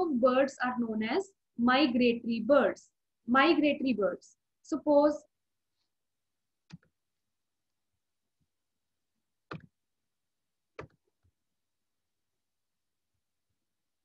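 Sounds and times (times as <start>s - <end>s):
computer mouse clicks: 9.5s - 9.7s.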